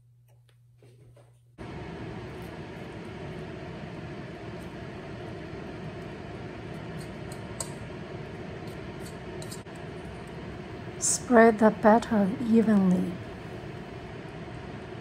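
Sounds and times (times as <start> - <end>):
whooshing hum of fan: 0.0 - 15.0.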